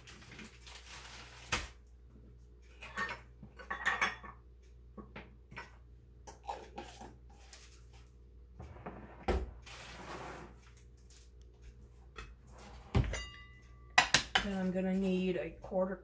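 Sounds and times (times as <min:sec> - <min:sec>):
faint steady hum: 0:00.0 - 0:16.0
jars clinking on a countertop: 0:02.8 - 0:04.4.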